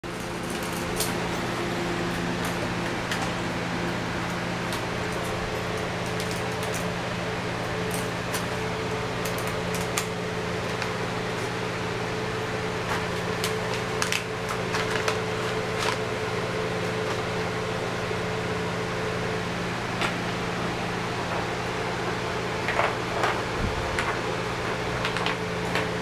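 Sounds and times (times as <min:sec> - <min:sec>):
steady mechanical hum: 0:00.0 - 0:26.0
paper rustling: 0:12.9 - 0:16.1.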